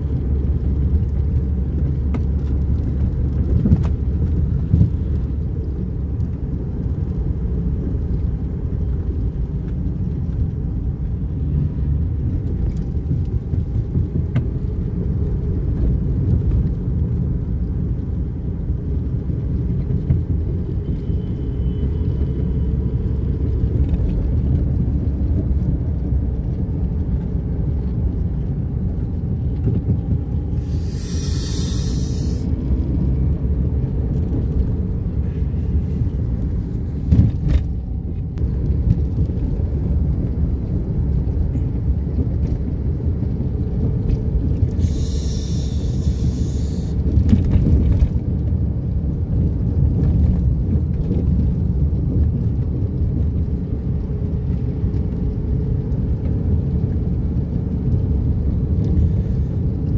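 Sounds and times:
engine and tyre rumble: 0.0 - 59.9
brief hiss: 30.6 - 32.5, 44.8 - 47.0.

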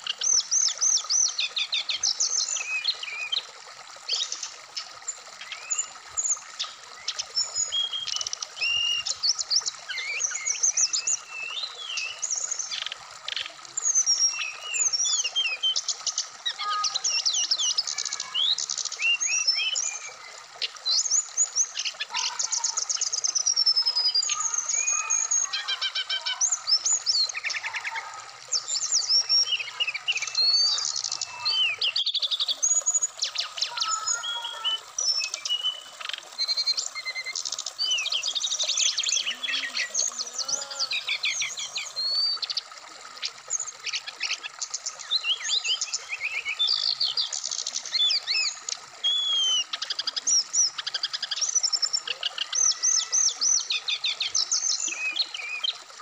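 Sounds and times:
stream rushing over rocks: 16.4 - 55.7
bird singing whistles and trills: 17.1 - 20.2, 28.6 - 42.6, 44.0 - 55.8.

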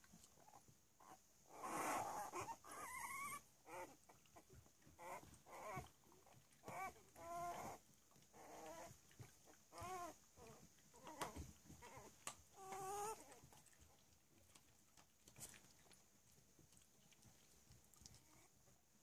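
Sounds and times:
puppies squeaking and whimpering: 1.1 - 13.6.

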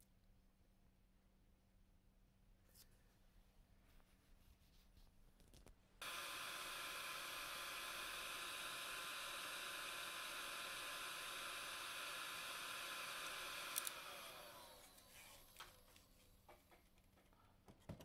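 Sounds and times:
heat gun fan whine: 6.0 - 16.2.

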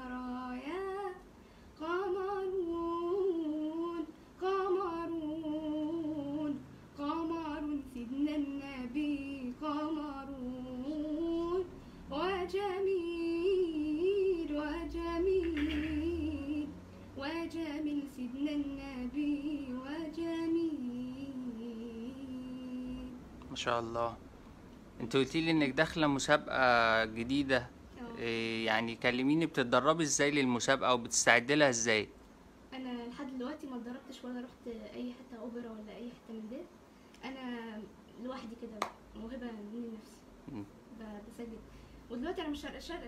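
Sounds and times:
girl singing devotional chant: 0.0 - 23.2, 32.7 - 40.3, 40.9 - 43.0.

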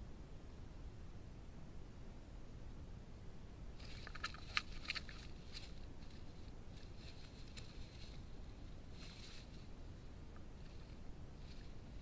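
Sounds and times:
sharp clicks and scrabbling rustles: 3.8 - 9.7
hedgehogs scuffling: 3.8 - 12.0.

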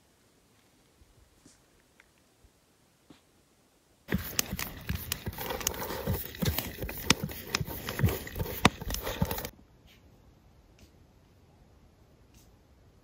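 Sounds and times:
dog lapping in metal pot: 4.1 - 9.5.

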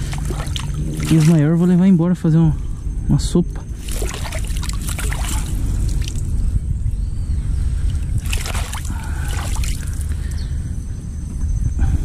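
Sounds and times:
water splashes: 0.0 - 1.7, 3.8 - 6.3, 7.9 - 10.1
water sloshing and trickling: 0.0 - 1.9, 3.6 - 6.6, 7.7 - 10.3
steady low rumble: 0.0 - 12.0.

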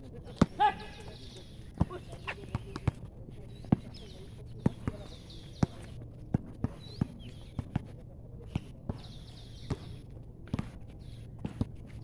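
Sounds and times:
basketball bouncing on concrete: 1.8 - 12.0.

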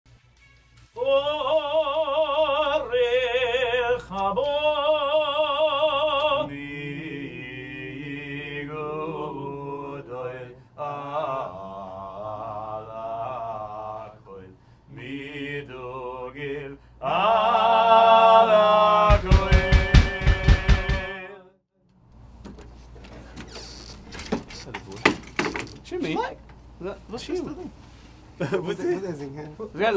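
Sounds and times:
operatic singing voice: 1.0 - 21.6.

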